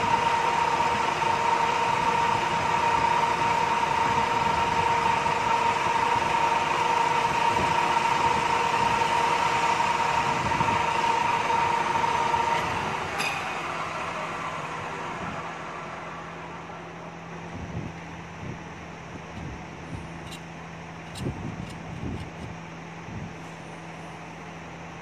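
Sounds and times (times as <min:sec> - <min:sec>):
lathe machining metal: 0:00.0 - 0:17.3
high whine: 0:00.0 - 0:25.0.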